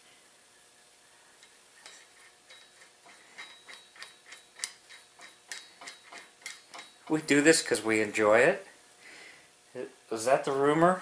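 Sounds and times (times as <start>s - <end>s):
socket ratchet clicking: 1.8s - 7.2s.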